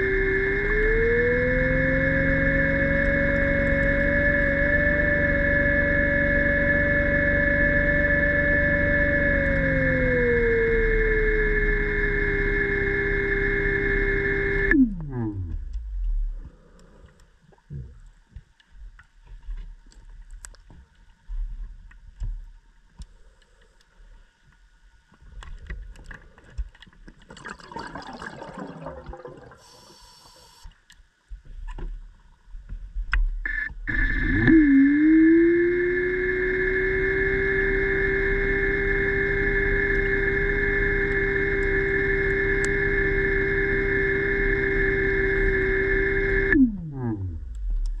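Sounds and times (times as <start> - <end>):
electric motor whining: 0.0 - 16.1, 33.5 - 48.0.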